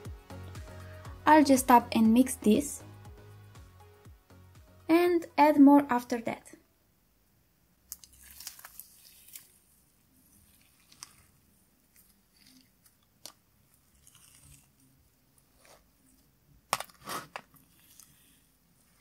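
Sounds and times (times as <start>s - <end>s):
glitter slime crackling and crunching: 7.9s - 19.0s.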